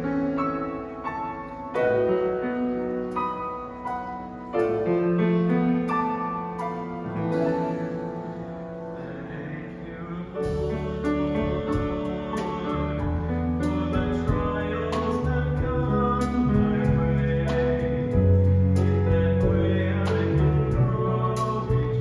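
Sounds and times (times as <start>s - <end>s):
piano chords ringing: 0.0s - 22.0s
bass and drums: 10.4s - 22.0s.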